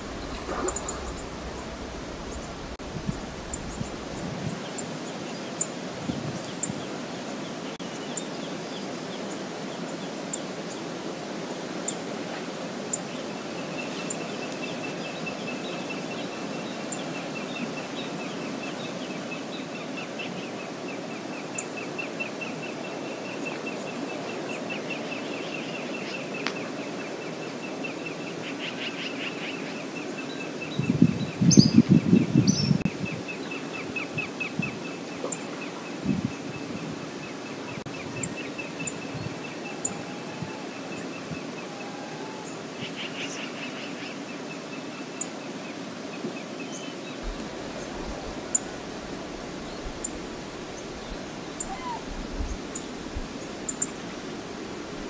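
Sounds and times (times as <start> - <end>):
bird trilling: 0.0 - 4.2, 51.6 - 52.1
low rumbling burst: 0.0 - 4.8
river water rushing: 0.0 - 30.7, 32.9 - 55.0
short high bird calls: 51.6 - 52.1.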